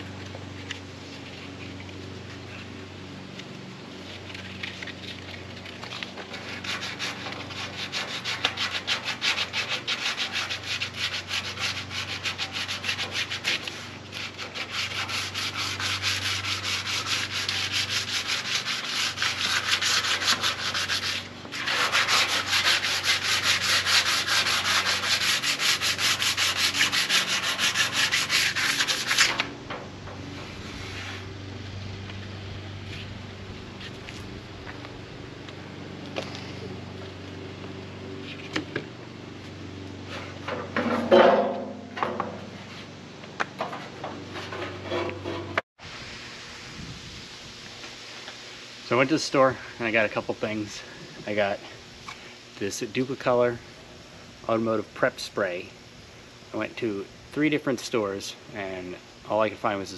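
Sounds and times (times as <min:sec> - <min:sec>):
sanding block scuffing paint: 0:04.0 - 0:29.5, 0:30.3 - 0:31.3.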